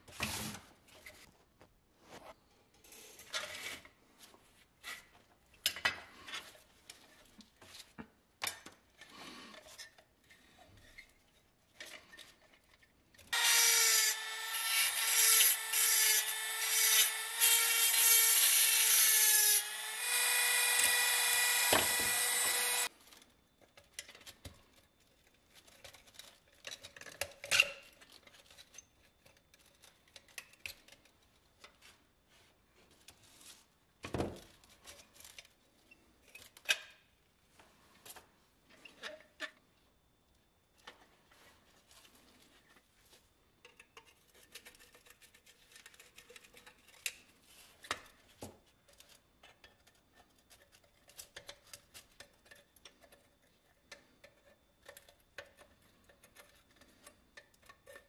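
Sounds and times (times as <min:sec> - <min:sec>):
rotary tool whining: 0:13.4 - 0:22.9.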